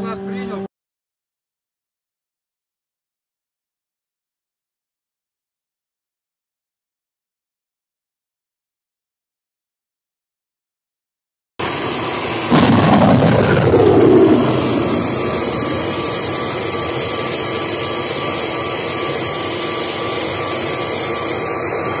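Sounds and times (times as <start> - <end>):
rocket motor blast: 11.6 - 18.4
missile rushing noise: 12.4 - 17.4.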